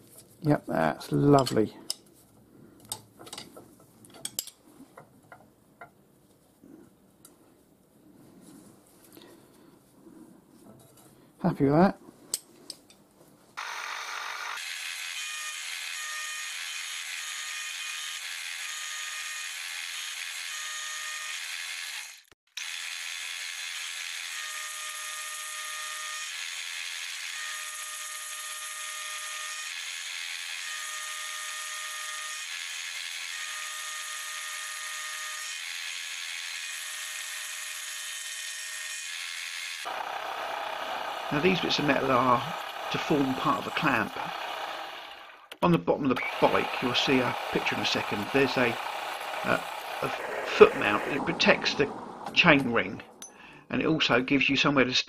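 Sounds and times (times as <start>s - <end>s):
milling machine whirring: 39.8s - 45.5s, 46.2s - 53.2s.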